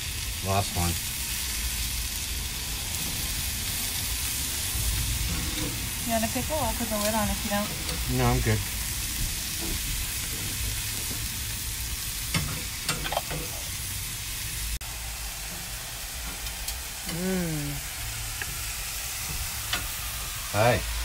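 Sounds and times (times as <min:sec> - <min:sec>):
vegetables sizzling on griddle: 0:00.0 - 0:21.0.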